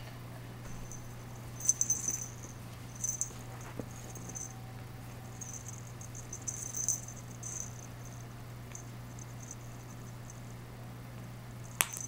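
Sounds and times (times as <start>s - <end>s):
steady low hum: 0.0s - 12.0s
scratchy rustling: 0.7s - 8.2s.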